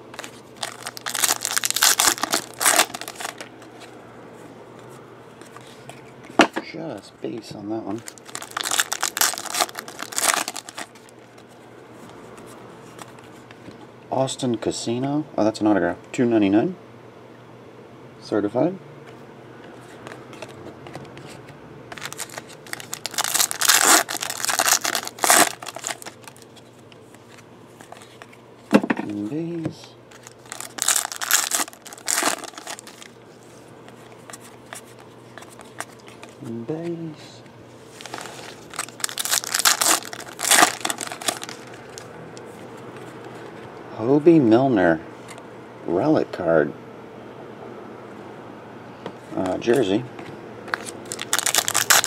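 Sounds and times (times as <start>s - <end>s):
cards being handled: 0.0s - 4.0s, 4.7s - 13.8s, 19.1s - 37.1s, 37.8s - 43.7s, 49.3s - 52.0s
foil wrapper crinkling: 0.1s - 3.6s, 8.0s - 11.5s, 21.9s - 28.3s, 30.1s - 33.2s, 37.9s - 42.1s, 50.7s - 52.0s.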